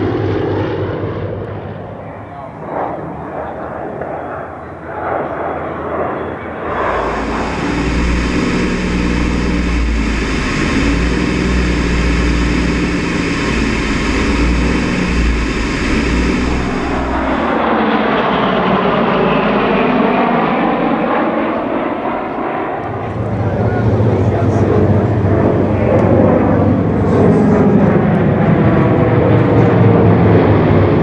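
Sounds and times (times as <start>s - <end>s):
aircraft engines and propellers running: 0.0s - 31.0s
planes passing overhead: 0.0s - 31.0s.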